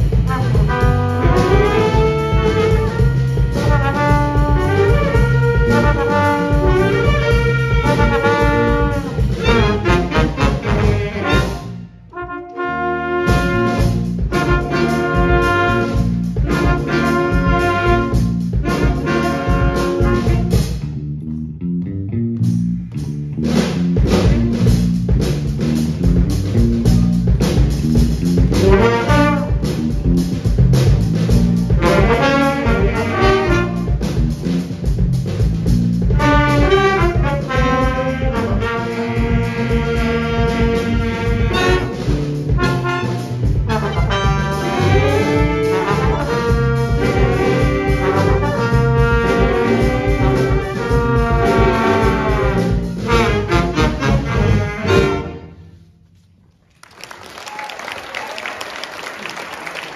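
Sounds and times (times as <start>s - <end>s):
horn section playing: 0.0s - 20.8s, 28.5s - 30.0s, 31.5s - 34.6s, 36.1s - 55.9s
bass and rhythm section: 0.0s - 59.9s.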